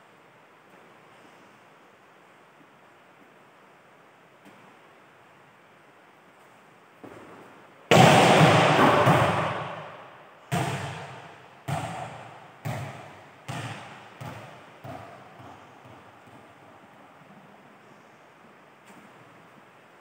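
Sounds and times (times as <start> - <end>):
ball bouncing on court floor: 7.0 - 9.9, 10.5 - 16.8
volleyball smack echoing: 7.9 - 16.4.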